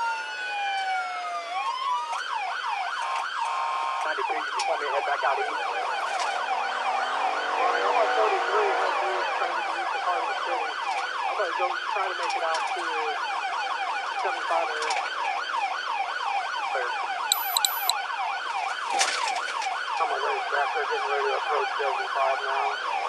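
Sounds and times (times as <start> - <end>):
police siren yelping: 0.0 - 18.5, 19.7 - 23.0
short high beeps: 17.3 - 17.9.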